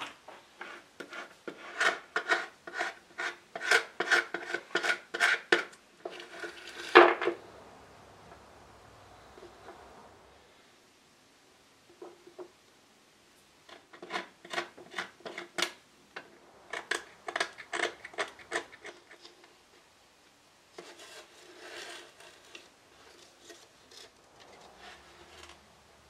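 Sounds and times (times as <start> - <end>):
rubbing sliding sound: 0.0 - 7.4, 20.8 - 25.8.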